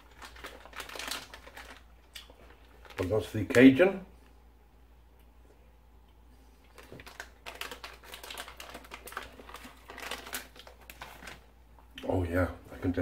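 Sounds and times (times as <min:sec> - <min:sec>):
plastic packet crackling: 0:00.0 - 0:03.8, 0:06.7 - 0:11.5.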